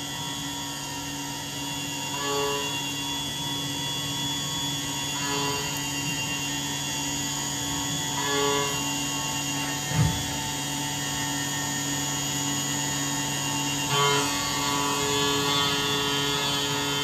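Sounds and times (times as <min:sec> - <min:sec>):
milling machine whining: 0:00.0 - 0:17.0
low thump: 0:09.9 - 0:10.4.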